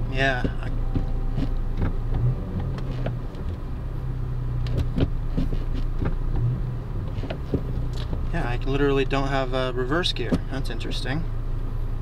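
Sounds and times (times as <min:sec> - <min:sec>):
car engine idling: 0:00.0 - 0:12.0
gear shifter clicks and clunks: 0:00.1 - 0:03.9, 0:04.6 - 0:08.4, 0:10.0 - 0:10.7.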